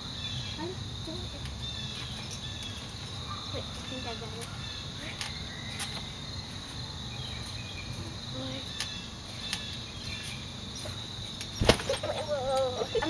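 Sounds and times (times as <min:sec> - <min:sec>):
crickets chirring: 0:00.0 - 0:13.0
thump on trampoline mat: 0:11.6 - 0:12.1
child's wavering voice: 0:12.1 - 0:13.0.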